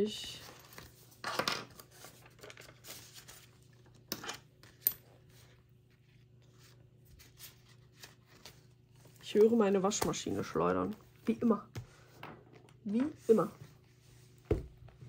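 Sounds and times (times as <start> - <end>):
paper rustling: 0.4 - 4.0, 4.6 - 11.4.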